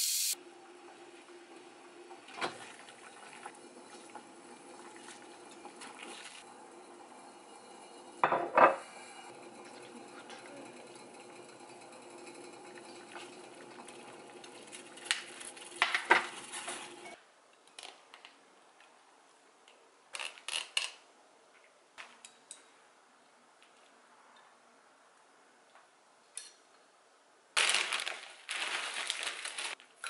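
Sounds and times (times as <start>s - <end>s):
stove background noise: 0.0s - 17.9s
metal utensils clinking on saucepan: 8.0s - 17.2s.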